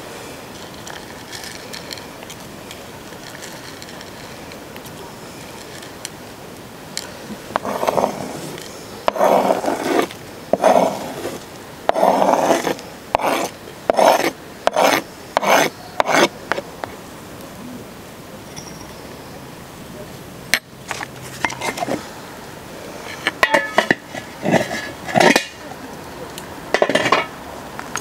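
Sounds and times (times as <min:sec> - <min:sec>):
utensils scraping wooden board: 0:07.6 - 0:16.3, 0:20.9 - 0:22.0, 0:23.1 - 0:25.6.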